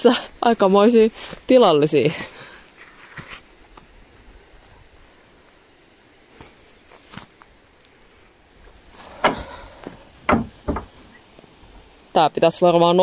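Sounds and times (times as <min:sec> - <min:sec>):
wooden door knocks and clunks: 0:10.2 - 0:11.0.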